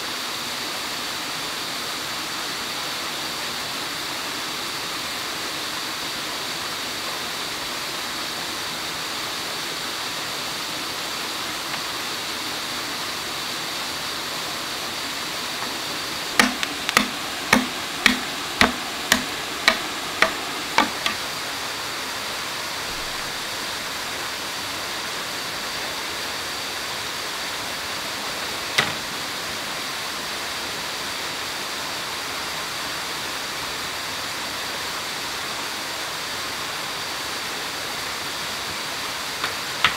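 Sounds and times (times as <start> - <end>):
waterfall and stream over rocks: 0.0 - 39.9
sharp knocks: 16.4 - 21.2.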